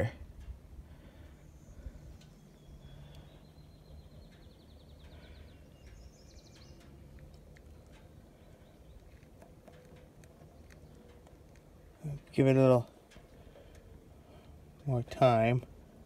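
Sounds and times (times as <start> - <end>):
outdoor background noise: 0.0 - 16.0
faint ticks: 2.1 - 3.3, 4.2 - 12.3, 13.0 - 14.9.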